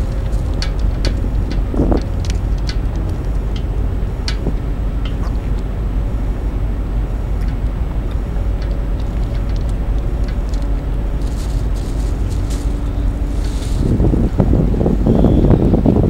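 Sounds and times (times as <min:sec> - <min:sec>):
light ticks: 0:00.0 - 0:05.7, 0:07.4 - 0:13.9
faint steady hum: 0:00.0 - 0:16.0
low outdoor rumble: 0:00.0 - 0:16.0.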